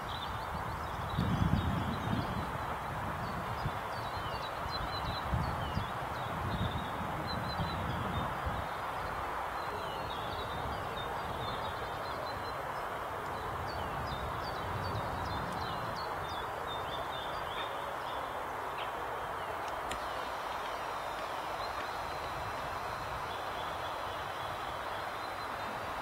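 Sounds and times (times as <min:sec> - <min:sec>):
songbirds chirping: 0:00.0 - 0:26.0
background rush: 0:08.0 - 0:26.0.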